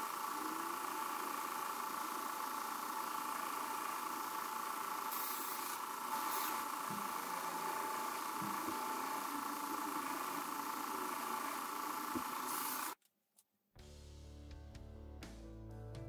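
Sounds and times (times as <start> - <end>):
belt grinder whining: 0.0 - 13.0
knife blade grinding hiss: 5.1 - 6.9.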